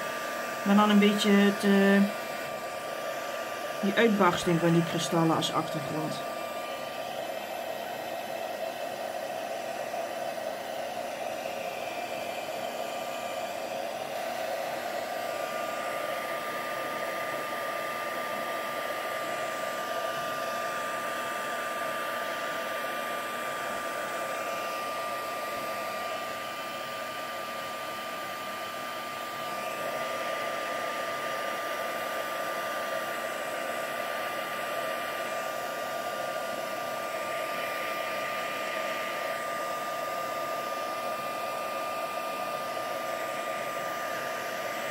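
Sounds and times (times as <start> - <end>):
heat gun blowing with high whine: 0.0 - 44.9.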